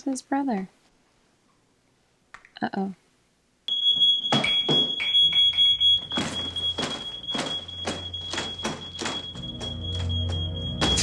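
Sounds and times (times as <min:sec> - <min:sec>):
smoke alarm shrill tone: 0:03.7 - 0:11.0.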